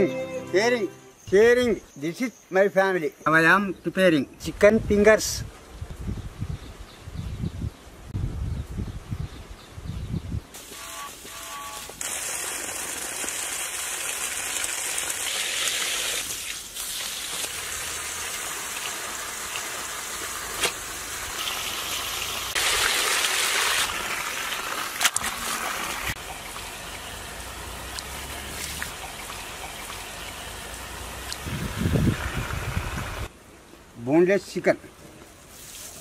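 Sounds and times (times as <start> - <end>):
water gushing from hose: 10.6 - 33.3.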